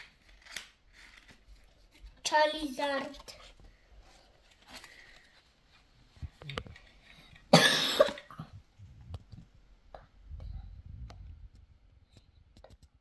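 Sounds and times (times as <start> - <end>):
person coughing: 7.5 - 8.5
faint clicks of cards handled: 11.1 - 13.0.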